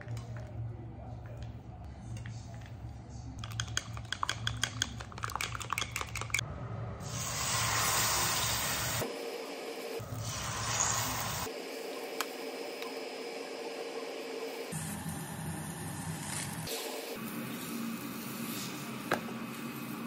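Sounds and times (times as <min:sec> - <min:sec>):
chopsticks clicking against glass: 0:03.4 - 0:06.4
egg mixture sizzling in pan: 0:10.2 - 0:11.5.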